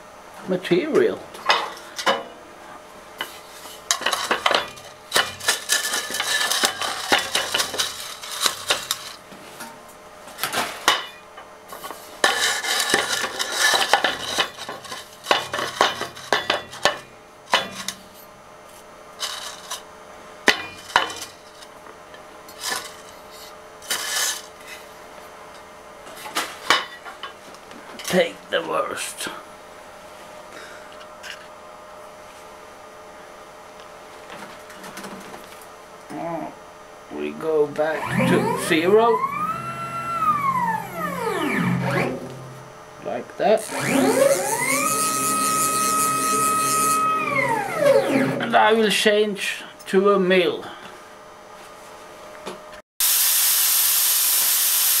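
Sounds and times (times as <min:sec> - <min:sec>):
milling machine spindle hum: 0:37.8 - 0:43.0, 0:43.6 - 0:48.8.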